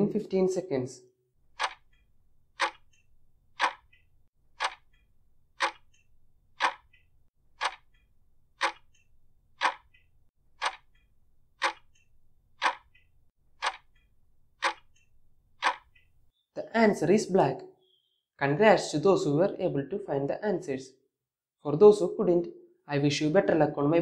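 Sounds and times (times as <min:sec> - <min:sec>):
stopwatch ticking: 0:01.4 - 0:16.4.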